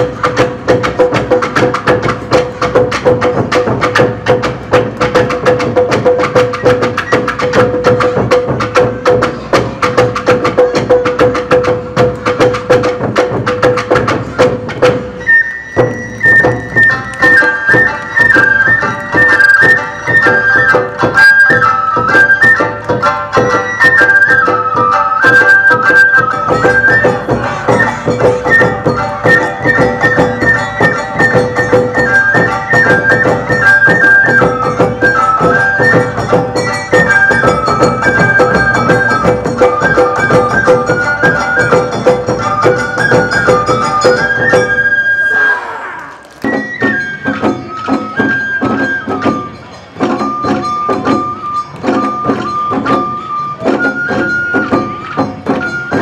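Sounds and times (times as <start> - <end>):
drum and bell beats: 0.0 - 45.0, 46.4 - 56.0
fast percussion strikes: 0.0 - 45.3, 46.1 - 56.0
bamboo flute melody: 0.0 - 56.0.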